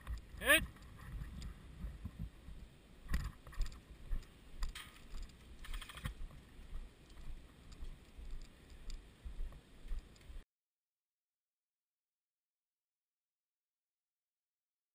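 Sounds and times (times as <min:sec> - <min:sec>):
gear clicking and rattling: 0:03.1 - 0:06.4.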